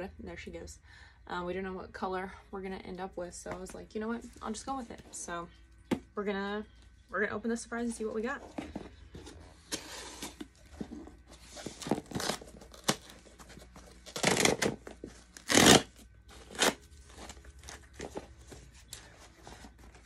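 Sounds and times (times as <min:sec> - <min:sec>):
cardboard flap tearing: 0:11.6 - 0:13.2, 0:14.0 - 0:17.4.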